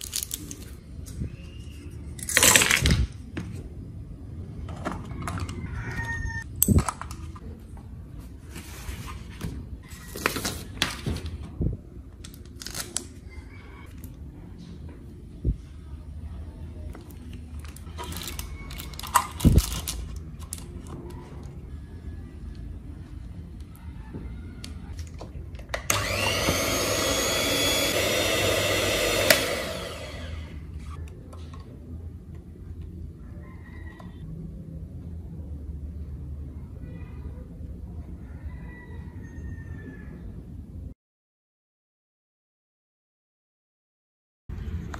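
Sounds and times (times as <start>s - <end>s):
electric mixer running: 25.9s - 30.7s.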